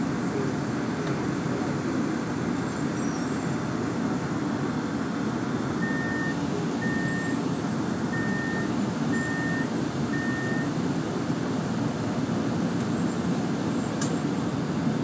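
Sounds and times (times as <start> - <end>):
short high beeps: 5.8 - 7.4, 8.2 - 10.7.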